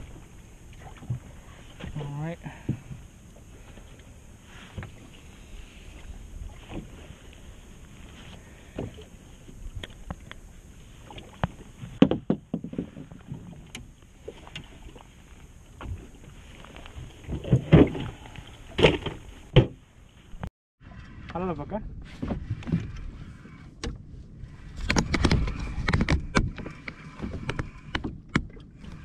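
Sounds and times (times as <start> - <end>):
handling knocks and clunks on boat: 0.0 - 4.0, 8.0 - 10.4, 11.0 - 15.0, 15.7 - 20.5, 21.4 - 23.1, 23.7 - 24.1, 24.8 - 29.0
water lapping: 0.0 - 20.1
wind: 0.0 - 29.0.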